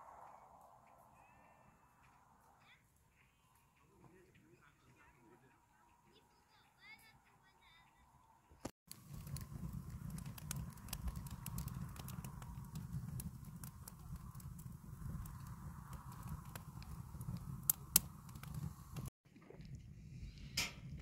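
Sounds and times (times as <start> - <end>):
low rumble: 0.0 - 2.6, 8.9 - 21.0
wood fire crackling: 8.9 - 21.0.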